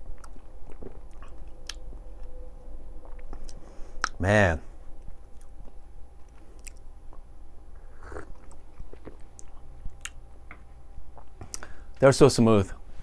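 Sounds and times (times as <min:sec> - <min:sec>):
lip smacks and clicks: 0:03.1 - 0:04.2, 0:06.2 - 0:07.2.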